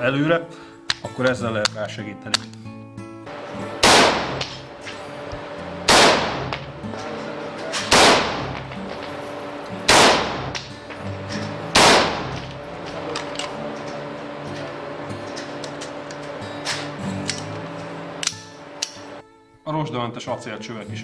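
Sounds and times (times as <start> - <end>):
background music: 0.0 - 21.0
rifle shots indoors: 3.4 - 4.8, 5.4 - 9.3, 9.9 - 10.7, 11.7 - 13.6.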